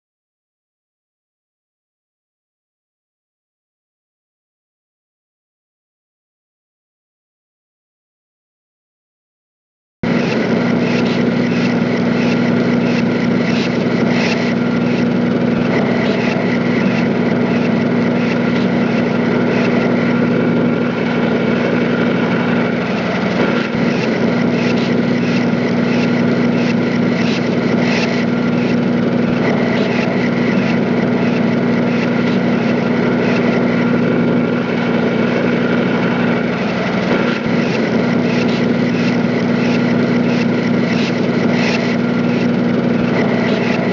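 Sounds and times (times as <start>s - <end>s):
machine droning: 10.0s - 43.9s.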